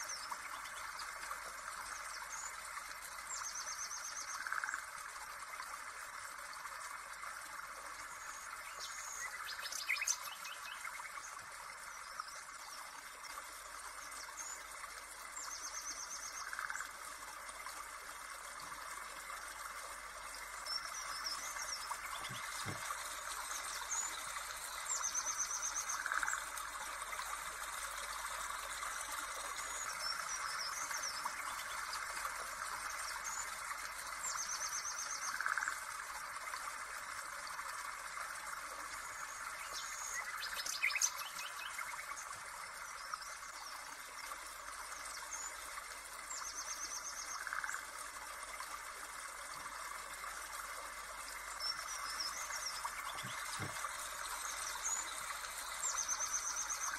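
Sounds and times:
running water trickling: 0.0 - 56.9
birds chirping and trilling: 20.6 - 26.5, 51.6 - 56.9.

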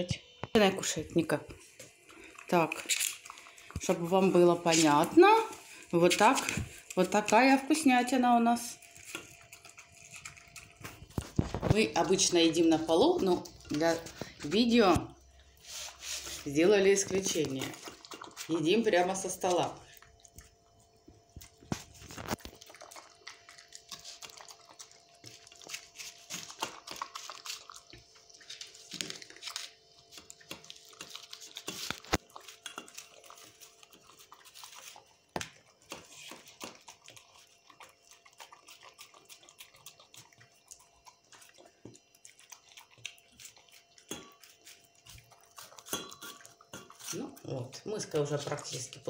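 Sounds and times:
dog lapping wet food: 1.5 - 49.0
teeth clinking on metal bowl: 44.0 - 44.6, 45.6 - 47.2.

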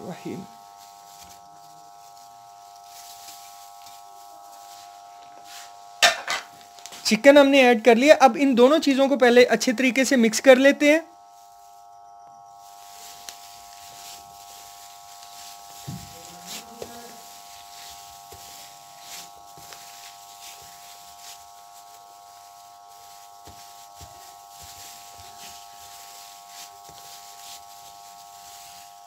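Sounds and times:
steady whine: 0.0 - 29.0
gloved hand mashing food: 13.2 - 29.0.

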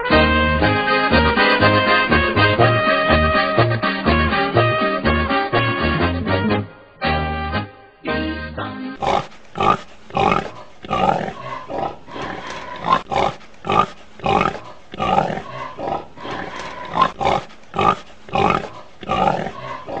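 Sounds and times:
pig grunting: 9.0 - 20.0.

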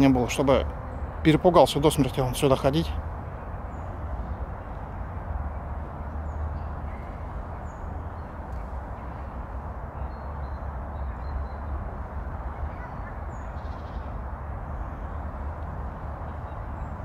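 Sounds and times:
faint high bird chirps: 12.4 - 15.2.

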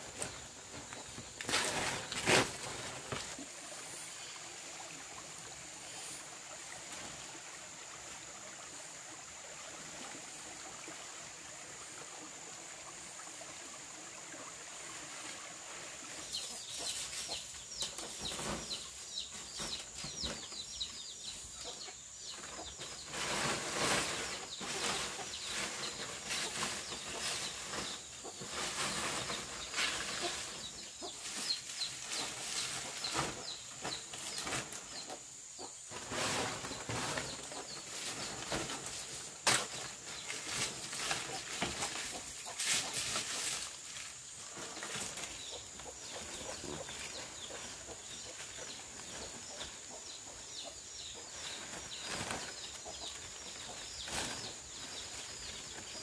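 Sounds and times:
rustling and scuffling: 0.0 - 3.6, 22.3 - 35.0, 35.9 - 49.9
chickens chirping and calling: 16.2 - 38.9, 39.7 - 43.6, 44.5 - 56.0.

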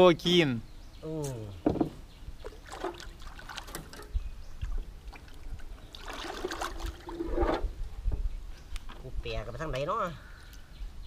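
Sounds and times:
water splashing and trickling: 1.2 - 9.6
knocks against canoe hull: 1.6 - 2.0.

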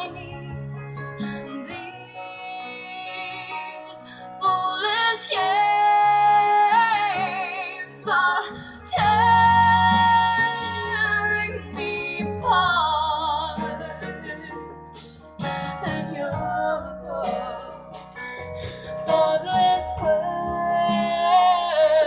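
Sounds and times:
low instrumental accompaniment: 8.1 - 22.0.

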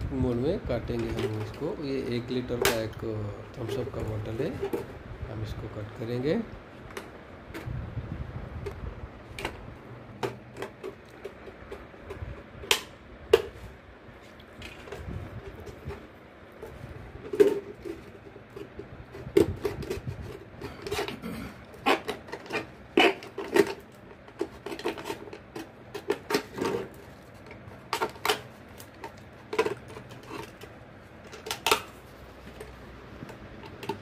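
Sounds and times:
plastic crackling: 14.2 - 34.0
knife cutting plastic bottle: 17.3 - 27.0.

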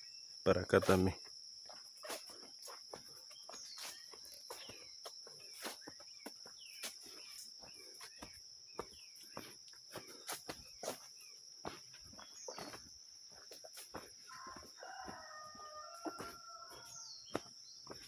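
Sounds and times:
insects droning: 0.0 - 18.0
footsteps crunching on dirt path: 0.6 - 18.0
small bird chirps: 2.0 - 11.4, 12.0 - 13.5.

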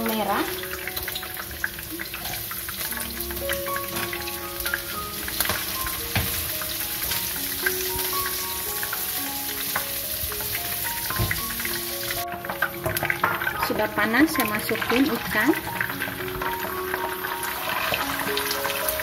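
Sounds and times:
background music: 0.0 - 19.0
garlic sizzling in hot oil: 0.0 - 19.0.

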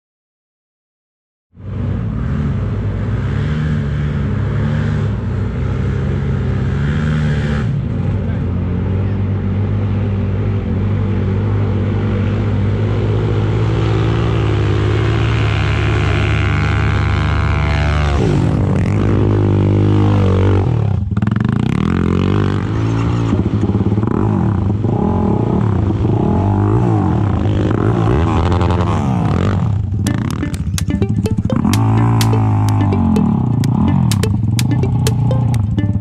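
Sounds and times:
atv engine droning at high revs: 1.6 - 29.8.

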